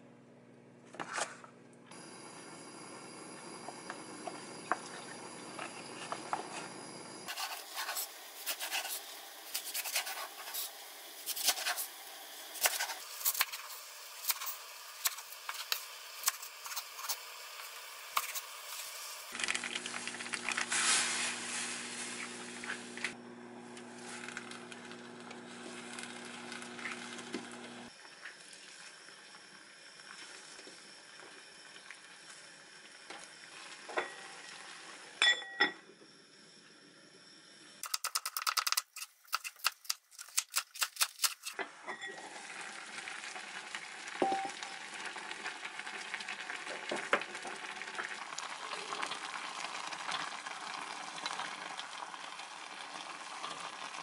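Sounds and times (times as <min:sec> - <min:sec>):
broth pouring into pot: 0:17.2 - 0:23.1, 0:27.9 - 0:35.2, 0:42.0 - 0:54.0.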